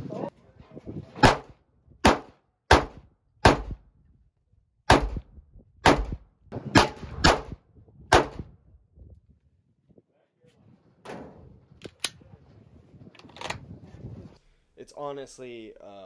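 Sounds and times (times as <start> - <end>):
pistol shots: 1.2 - 3.8, 4.9 - 8.5.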